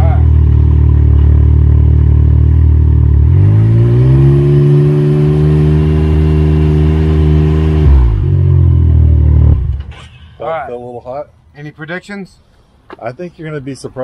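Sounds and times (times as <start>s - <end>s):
engine idling and revving: 0.0s - 10.1s.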